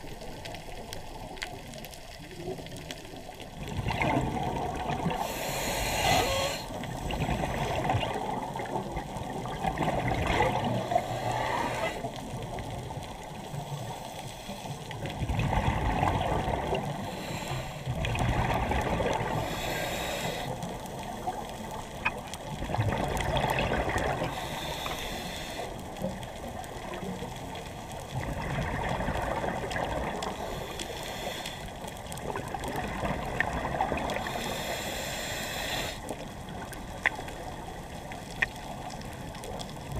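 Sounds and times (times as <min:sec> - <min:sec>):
underwater bubbles gurgling: 0:00.0 - 0:39.9
regulator inhalation hiss: 0:05.2 - 0:06.9, 0:10.8 - 0:12.1, 0:17.0 - 0:17.9, 0:19.4 - 0:20.7, 0:24.3 - 0:25.8, 0:30.4 - 0:31.8, 0:34.2 - 0:36.1.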